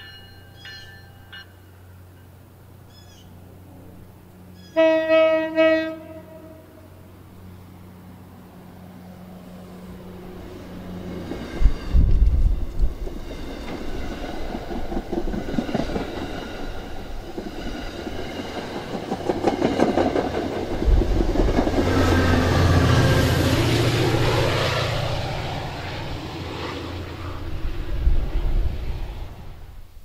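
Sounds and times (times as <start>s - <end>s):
diesel locomotive hum: 0.0s - 30.0s
train wheels clicking over rail joints: 10.4s - 22.7s.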